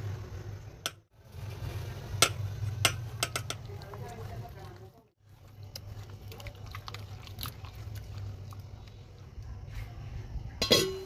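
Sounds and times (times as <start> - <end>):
hands squishing meat in marinade: 5.3 - 9.0
sharp metal clank: 10.6 - 11.0.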